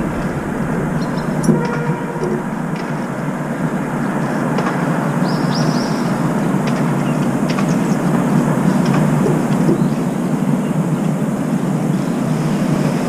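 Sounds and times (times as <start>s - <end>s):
low outdoor rumble: 0.0s - 10.4s.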